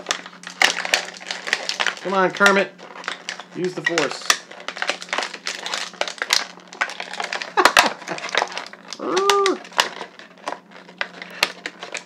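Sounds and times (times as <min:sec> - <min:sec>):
plastic packaging crinkling: 0:00.0 - 0:12.0
person humming: 0:09.0 - 0:09.6.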